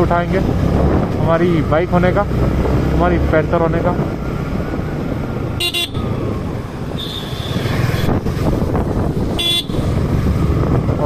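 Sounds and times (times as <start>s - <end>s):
wind and road noise: 0.0s - 11.0s
motorcycle engine running: 0.1s - 11.0s
short horn beep: 5.6s - 6.0s.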